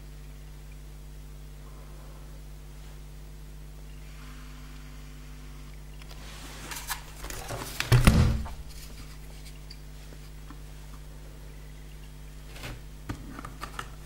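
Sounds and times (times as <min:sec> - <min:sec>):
thump on wooden board: 0:07.9 - 0:08.6.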